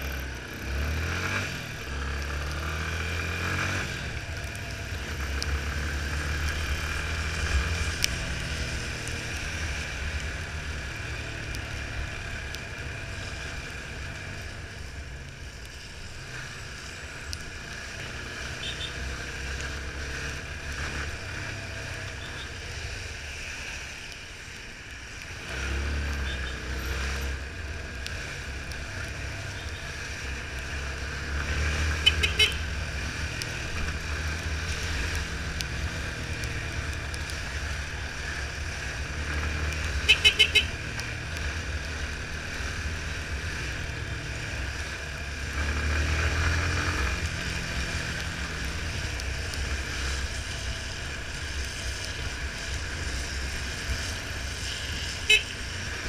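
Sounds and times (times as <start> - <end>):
wind and road noise: 0.0 - 56.0
motorcycle engine running: 26.1 - 56.0
short horn toots: 40.1 - 40.7, 55.3 - 55.5.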